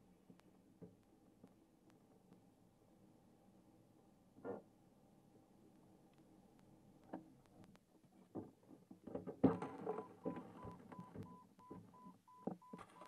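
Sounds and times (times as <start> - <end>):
faint short beeps: 9.6 - 13.0.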